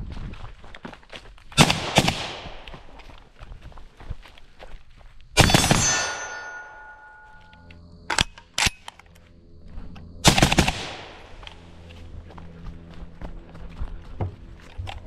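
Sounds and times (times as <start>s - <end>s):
rifle shots: 1.6s - 2.7s, 5.4s - 6.6s, 10.2s - 11.4s
steel plate ringing: 5.4s - 7.6s.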